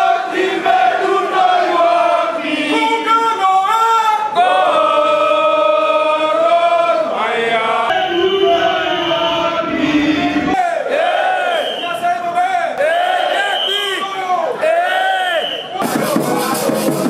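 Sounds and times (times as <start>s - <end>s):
crowd singing a chant: 0.0s - 3.3s, 3.9s - 11.7s.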